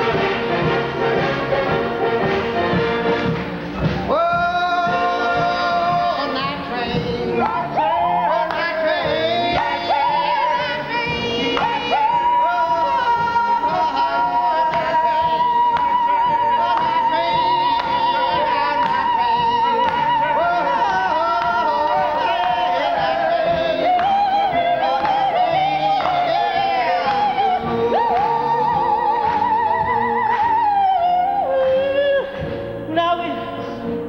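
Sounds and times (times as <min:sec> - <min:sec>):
musical accompaniment: 0:00.0 - 0:34.0
person singing with vibrato: 0:04.0 - 0:34.0.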